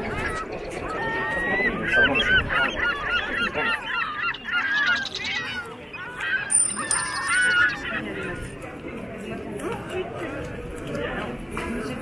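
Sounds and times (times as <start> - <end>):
birds squawking: 0.1 - 8.4.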